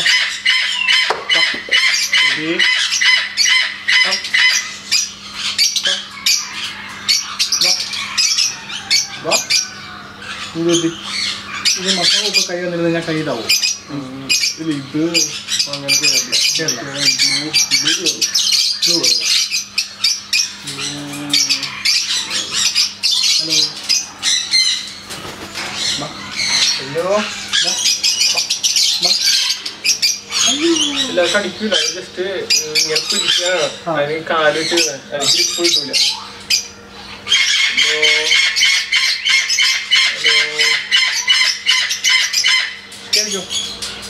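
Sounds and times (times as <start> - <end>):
parrots squawking loudly: 0.0 - 44.0.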